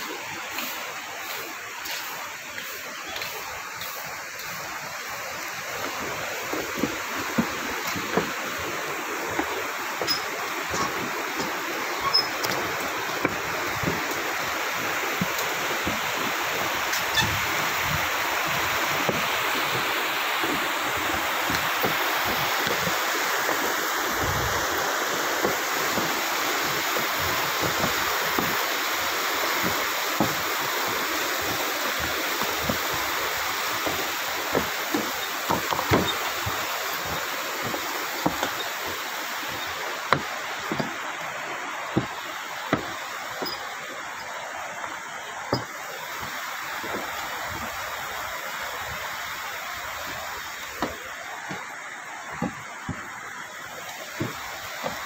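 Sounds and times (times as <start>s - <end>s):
river rushing over rocks: 0.0s - 55.0s
footsteps on wooden planks: 0.5s - 49.2s, 49.8s - 55.0s.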